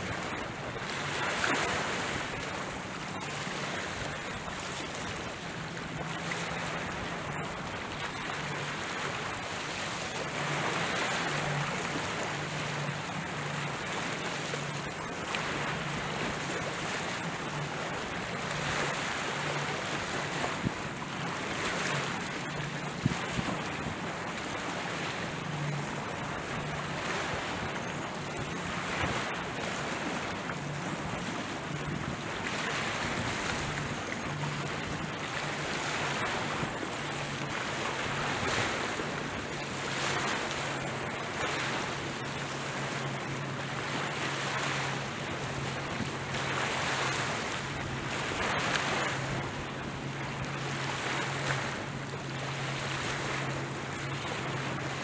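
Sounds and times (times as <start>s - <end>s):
low boat engine hum: 0.0s - 55.0s
wind buffeting microphone: 22.8s - 24.6s.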